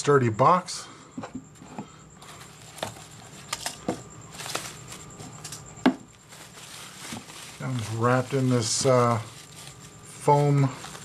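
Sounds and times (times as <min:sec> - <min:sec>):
foam wrapper rustling: 0:02.2 - 0:11.0.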